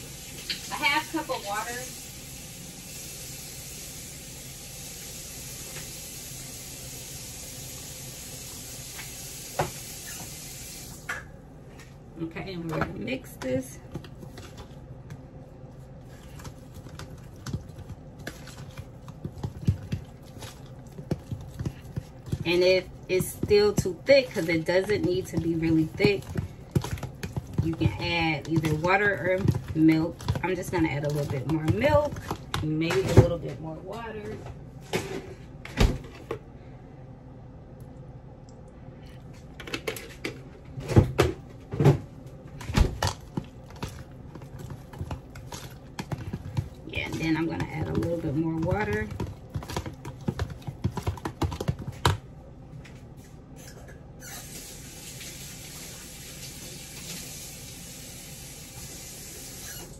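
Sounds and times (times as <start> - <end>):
fork stirring batter: 13.4 - 33.0, 43.2 - 52.2.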